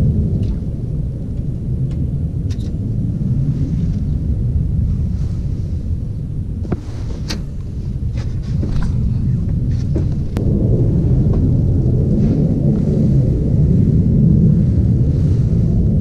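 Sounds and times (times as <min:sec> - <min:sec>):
low rumbling noise: 0:00.0 - 0:16.0.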